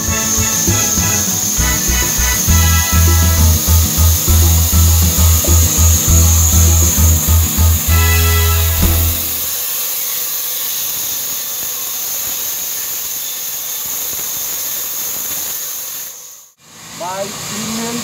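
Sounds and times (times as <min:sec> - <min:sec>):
background music: 0:00.0 - 0:09.5
band saw hiss and whine: 0:00.0 - 0:18.0.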